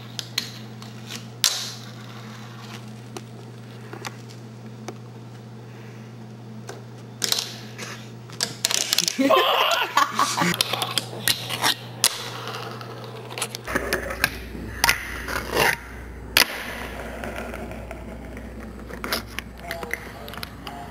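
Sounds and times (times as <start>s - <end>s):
wheels rolling and scraping: 0.0s - 4.4s, 10.5s - 20.9s.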